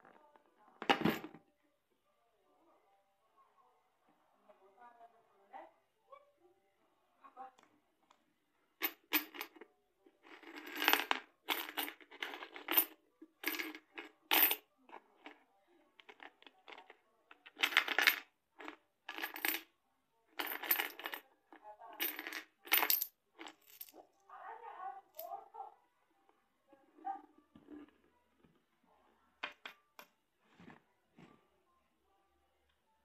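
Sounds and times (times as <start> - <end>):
coins clattering in piggy bank: 8.8 - 9.6, 10.2 - 15.4, 16.0 - 19.7, 20.4 - 21.3, 21.9 - 24.0.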